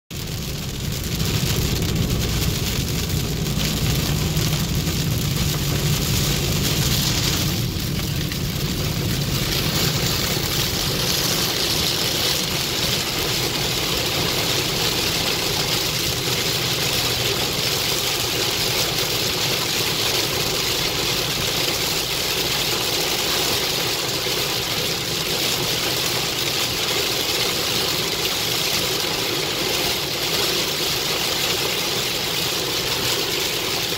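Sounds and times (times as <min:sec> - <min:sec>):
tyres and engine rumble: 0:00.1 - 0:18.3
heavy rain on car roof: 0:00.1 - 0:33.9.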